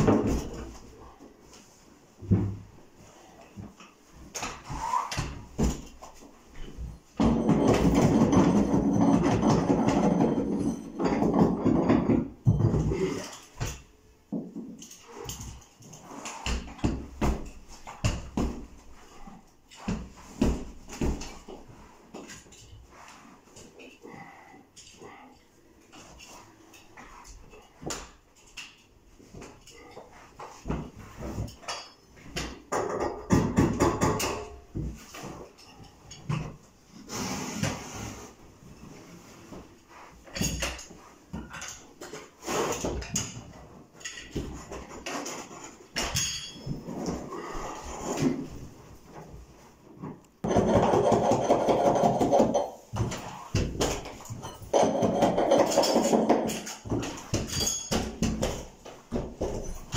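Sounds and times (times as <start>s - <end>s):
tools clattering on carpet: 3.0s - 24.0s, 39.5s - 47.3s, 50.0s - 59.9s.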